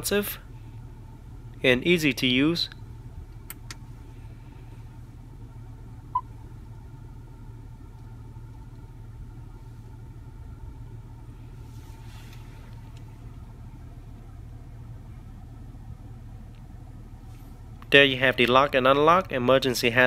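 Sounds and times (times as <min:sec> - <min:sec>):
car cabin hum: 0:00.0 - 0:20.0.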